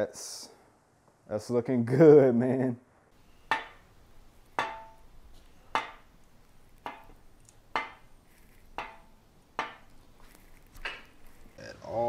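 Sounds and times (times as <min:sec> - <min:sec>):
sharp metal knocks with ring: 0:03.5 - 0:03.9, 0:04.6 - 0:05.0, 0:08.8 - 0:09.9.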